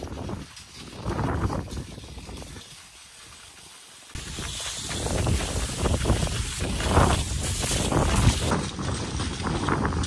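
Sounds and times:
skis scraping on snow: 0.0s - 10.0s
wind on microphone: 4.2s - 10.0s.

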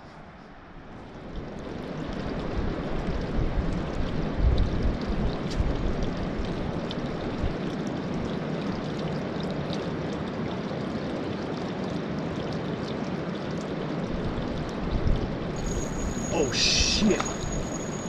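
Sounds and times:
creek water rushing: 14.0s - 18.0s.

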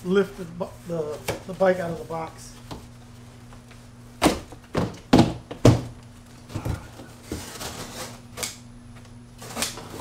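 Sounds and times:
cardboard panel thud: 4.2s - 6.0s.

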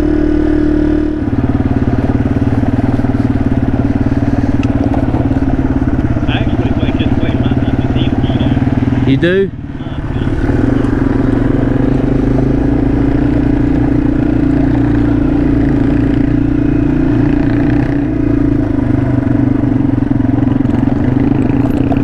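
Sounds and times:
motorcycle engine running: 0.0s - 22.0s
riding noise: 1.4s - 18.6s.

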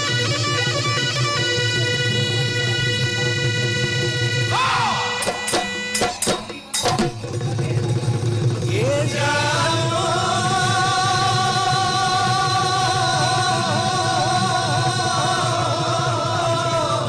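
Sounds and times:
long high vibrato note: 0.0s - 7.2s.

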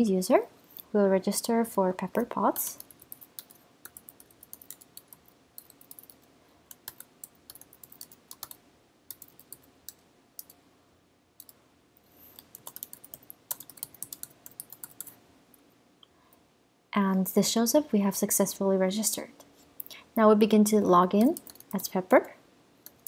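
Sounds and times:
computer keyboard typing: 2.8s - 10.6s, 11.4s - 11.6s, 12.3s - 15.2s, 21.2s - 22.0s.

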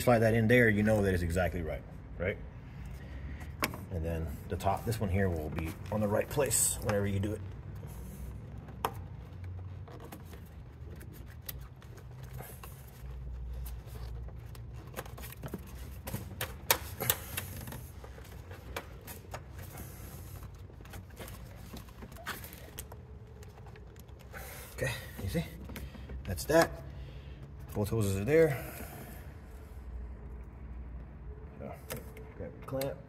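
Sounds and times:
rubber hose being handled: 3.4s - 29.1s.

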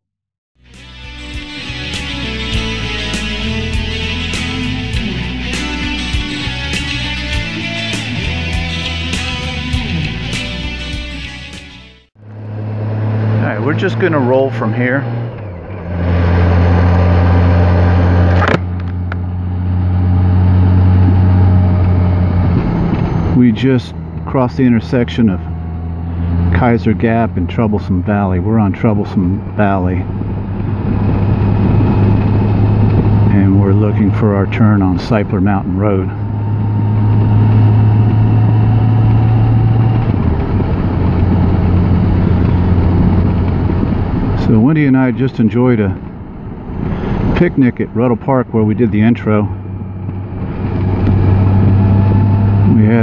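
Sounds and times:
motorcycle engine: 0.6s - 53.0s
wind noise: 15.4s - 24.2s, 25.4s - 53.0s.

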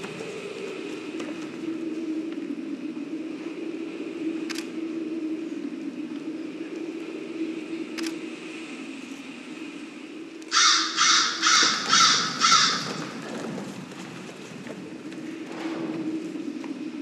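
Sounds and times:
steady low hum: 0.0s - 17.0s
crow cawing: 10.5s - 13.1s.

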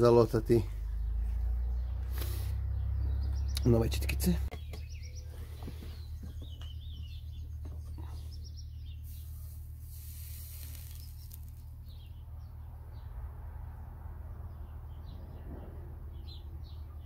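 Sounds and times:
birds chirping: 0.0s - 17.0s
soldering iron hissing: 9.2s - 11.4s.

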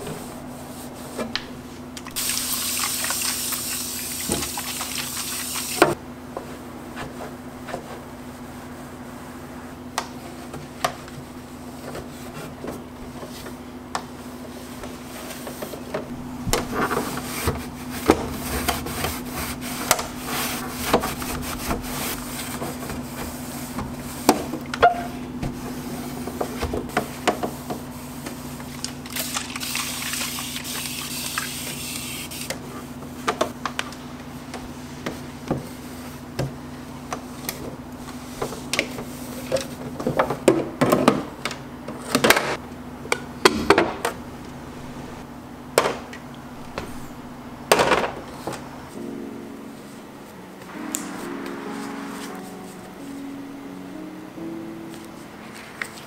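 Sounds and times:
steady low hum: 0.0s - 2.2s, 5.8s - 29.1s
wiping and rubbing plastic: 0.0s - 36.4s, 37.1s - 40.0s.

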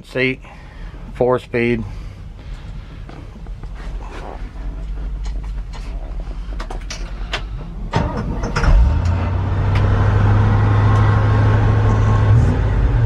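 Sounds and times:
engine cranking: 6.7s - 9.8s.

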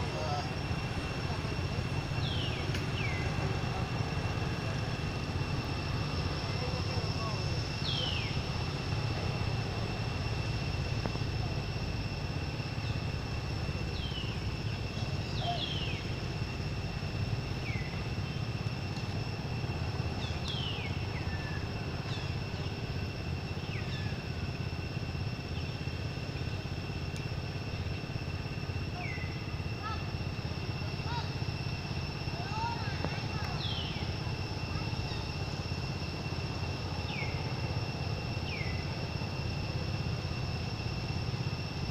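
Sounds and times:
high-pitched whine: 0.0s - 41.9s.

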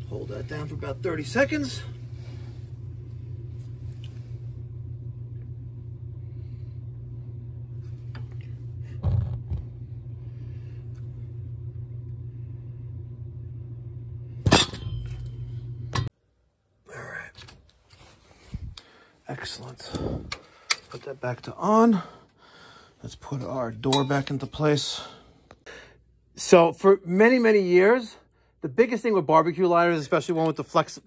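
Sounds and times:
low mechanical hum: 0.0s - 31.0s.

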